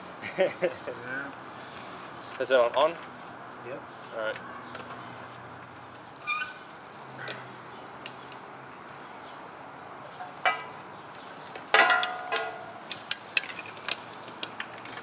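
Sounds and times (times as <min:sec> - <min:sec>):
metallic clinks and knocks: 0:10.2 - 0:10.8, 0:11.6 - 0:15.0.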